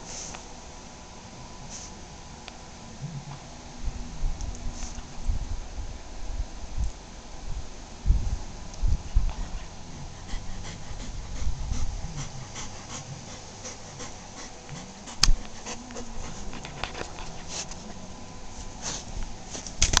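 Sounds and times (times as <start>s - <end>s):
dog breathing: 0.0s - 0.4s, 8.8s - 20.0s
dog making low sounds: 9.0s - 19.8s.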